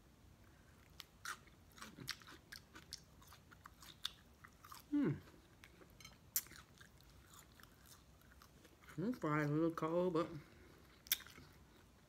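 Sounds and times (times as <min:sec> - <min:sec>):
wet chewing: 0:00.8 - 0:08.9, 0:10.9 - 0:11.9
person humming: 0:04.9 - 0:05.3.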